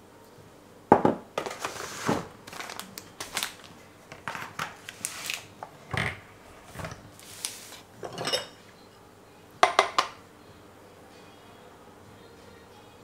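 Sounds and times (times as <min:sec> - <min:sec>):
kitchen items knocking and rustling: 0:00.9 - 0:02.8, 0:04.1 - 0:04.8, 0:05.6 - 0:07.1, 0:08.0 - 0:08.6, 0:09.6 - 0:10.2
ceramic bowl clink: 0:08.0 - 0:08.6.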